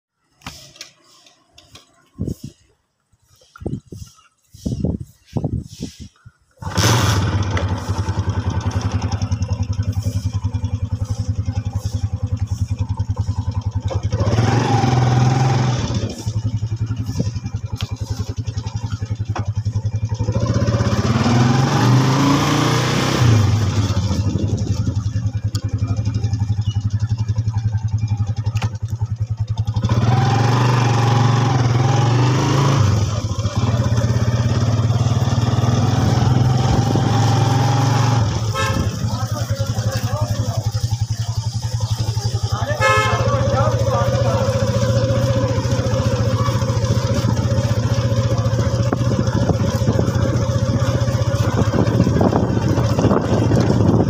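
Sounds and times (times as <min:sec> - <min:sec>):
motorcycle engine running: 0:06.6 - 0:54.0.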